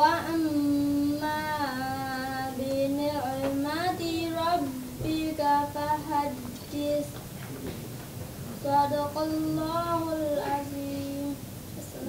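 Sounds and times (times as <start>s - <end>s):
girl chanting melodic recitation: 0.0s - 7.2s, 8.6s - 12.0s.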